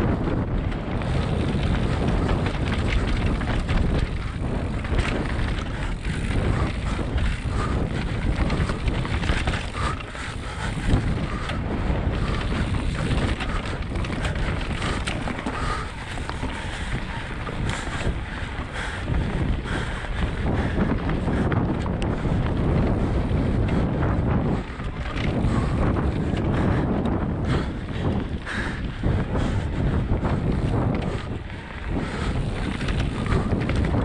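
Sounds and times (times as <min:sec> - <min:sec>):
bike knocking and rattling: 0:00.0 - 0:34.0
wind buffeting microphone: 0:00.0 - 0:34.0.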